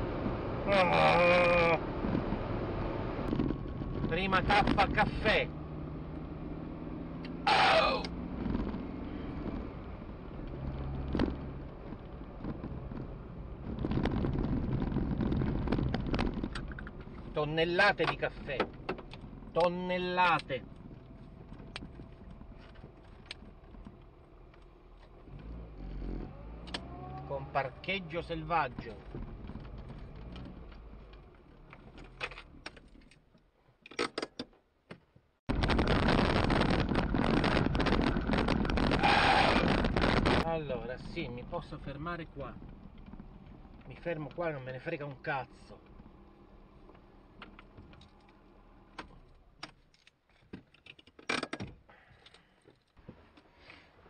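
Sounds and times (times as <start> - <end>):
low engine hum: 0.0 - 32.7, 35.5 - 49.6
sharp clicks and rattles: 10.4 - 25.6, 28.8 - 34.6, 35.5 - 39.0, 41.1 - 46.1, 46.9 - 53.0.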